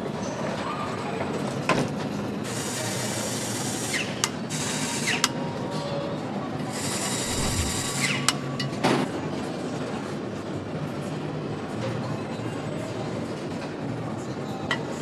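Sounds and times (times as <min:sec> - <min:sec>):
steady machine hum: 0:07.2 - 0:08.0.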